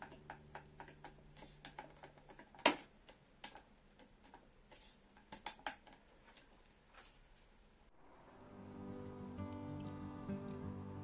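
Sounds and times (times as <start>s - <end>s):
wooden joint clicking and knocking: 0.0s - 4.5s, 5.1s - 6.5s
faint guitar music: 8.1s - 11.0s.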